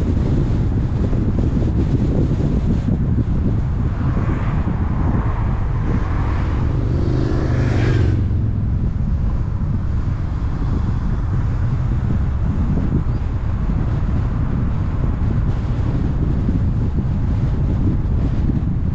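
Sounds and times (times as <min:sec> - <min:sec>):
car wind and road noise: 0:00.0 - 0:18.9
vehicle passing close by: 0:02.6 - 0:18.5.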